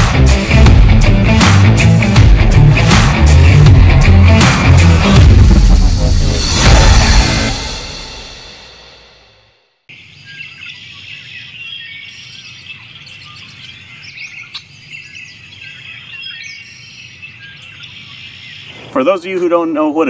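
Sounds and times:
small birds chirping and trilling: 0:09.9 - 0:20.0.

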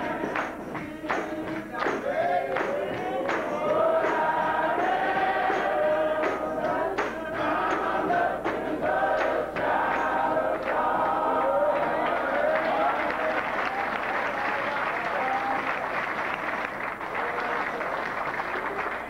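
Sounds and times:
sharp percussive hits: 0:00.0 - 0:11.1
men's choir singing gospel: 0:00.0 - 0:15.4.

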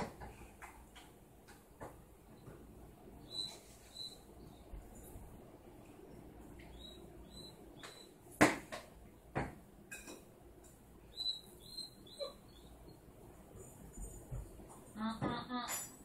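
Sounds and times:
dog whimpering: 0:12.1 - 0:12.6.

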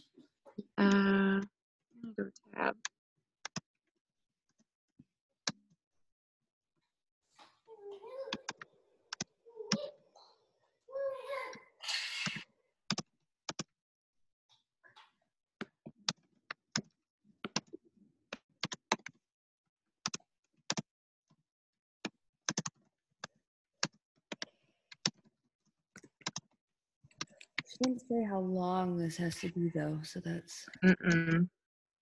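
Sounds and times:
keyboard typing: 0:12.3 - 0:13.7, 0:22.5 - 0:22.8.

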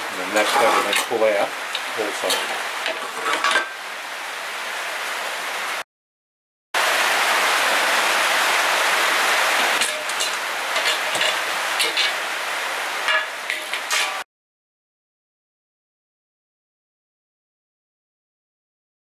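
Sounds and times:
steady hiss: 0:00.0 - 0:05.8, 0:06.8 - 0:14.2.

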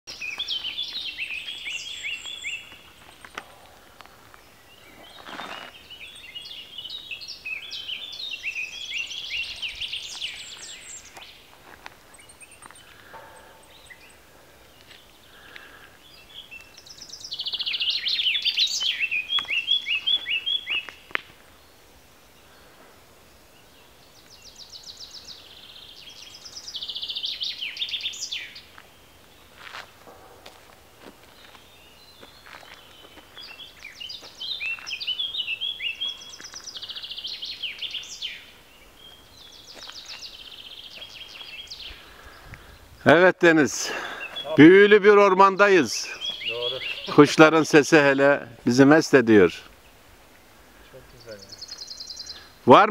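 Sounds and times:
songbirds singing: 0:00.1 - 0:52.9.

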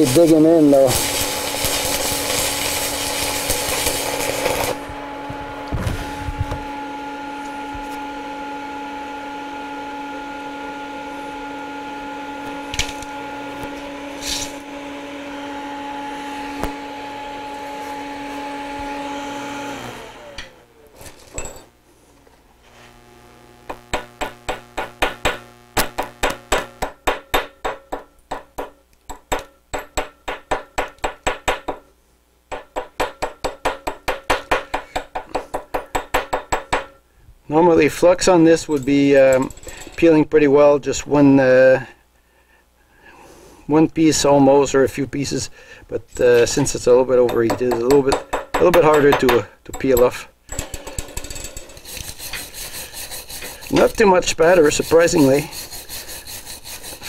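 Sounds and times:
welding arc crackling: 0:00.0 - 0:05.0, 0:22.9 - 0:27.0, 0:50.7 - 0:57.0
machine hum: 0:00.0 - 0:27.0.

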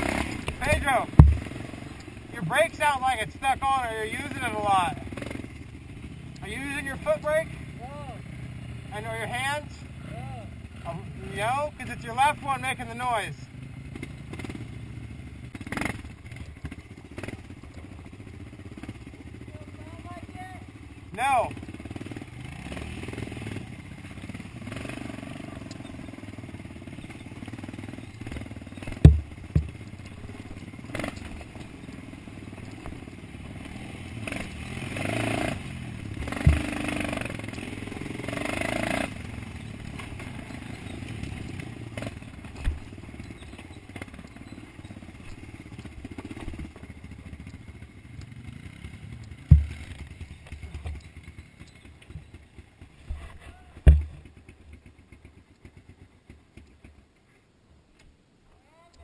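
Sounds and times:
dirt bike engine revving: 0:00.0 - 0:53.1
sharp knocks over bumps: 0:00.1 - 0:01.7, 0:27.5 - 0:31.8, 0:36.2 - 0:37.7, 0:39.8 - 0:42.9, 0:49.3 - 0:51.2, 0:53.0 - 0:54.4.

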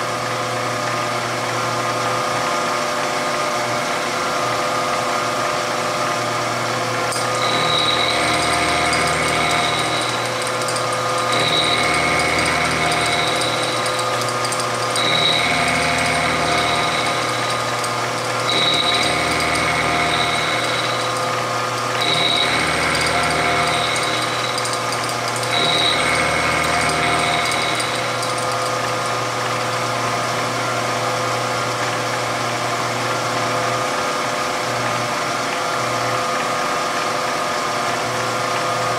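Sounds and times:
steady machine hum: 0:03.4 - 0:30.8
milling machine cutting metal: 0:06.6 - 0:33.4.

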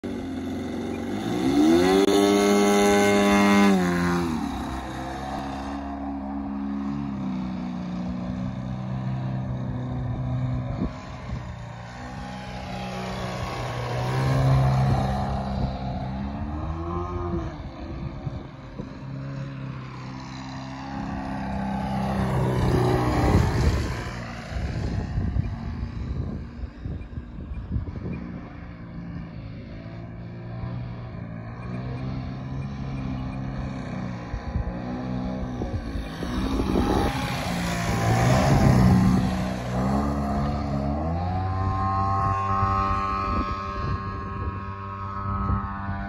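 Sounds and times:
model airplane motor and propeller: 0:00.0 - 0:46.0.

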